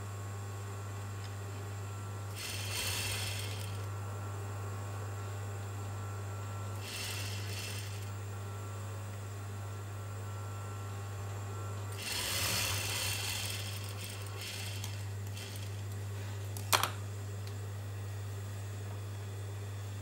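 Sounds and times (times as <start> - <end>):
sewing machine motor humming: 2.3 - 3.9, 6.7 - 8.4, 11.9 - 16.0
sewing machine stitching: 2.4 - 3.9, 6.8 - 8.1, 12.0 - 15.8.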